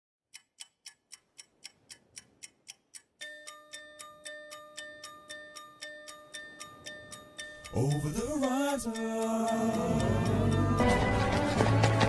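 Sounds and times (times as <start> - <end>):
clock-like ticking beat: 0.3 - 11.9
held sustained notes: 7.6 - 11.5.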